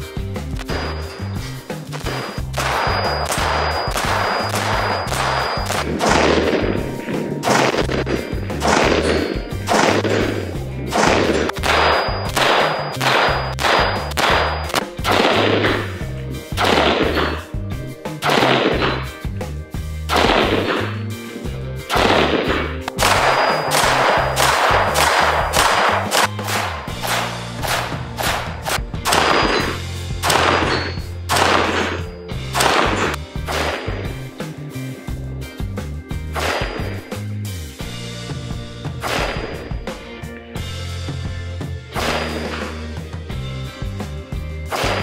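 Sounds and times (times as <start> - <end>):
background music with bass line: 0.0 - 45.0
loud sharp hits: 0.6 - 17.5, 20.1 - 21.0, 21.9 - 34.2, 36.4 - 37.1, 42.0 - 42.8
rifle shots with echo: 2.0 - 16.0, 16.6 - 17.4, 18.2 - 19.0, 20.1 - 21.0, 21.9 - 34.2, 36.4 - 37.0, 39.0 - 39.9, 42.0 - 42.8, 44.7 - 45.0.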